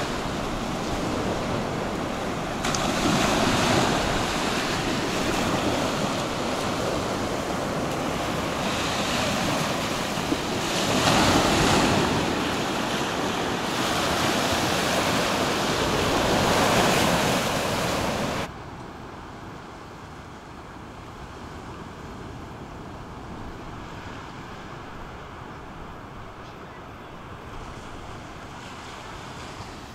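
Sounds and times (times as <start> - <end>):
small waves breaking on shore: 0.0 - 18.5, 19.2 - 29.9
wind buffeting microphone: 0.0 - 18.5.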